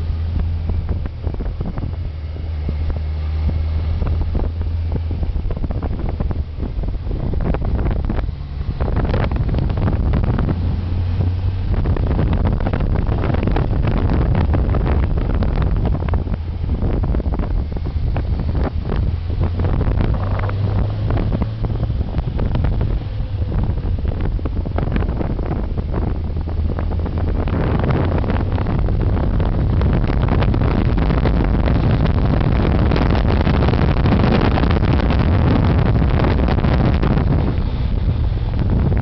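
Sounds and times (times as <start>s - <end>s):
low engine drone: 0.0s - 39.0s
wind buffeting microphone: 0.0s - 39.0s.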